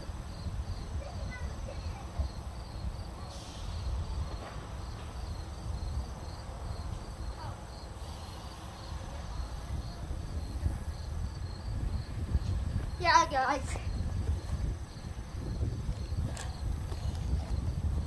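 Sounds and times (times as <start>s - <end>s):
wind rumble on microphone: 0.0s - 8.0s, 8.9s - 18.0s
cricket chirping: 0.0s - 13.0s, 13.8s - 18.0s.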